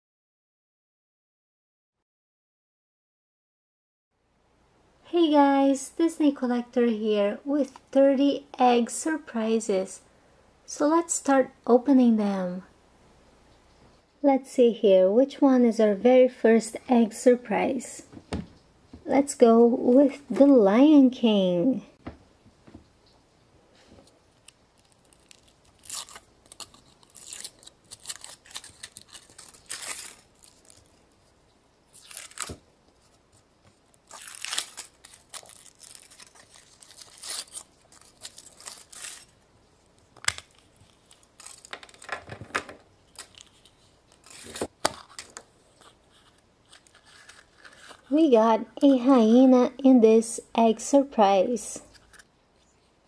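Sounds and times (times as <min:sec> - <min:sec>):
wrapper tearing and crinkling: 0:24.4 - 0:31.3, 0:31.9 - 0:42.5, 0:43.1 - 0:48.1.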